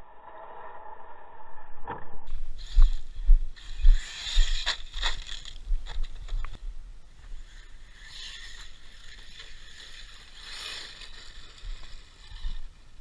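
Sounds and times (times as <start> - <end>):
rc truck crunching on gravel: 2.5 - 6.6, 7.2 - 13.0.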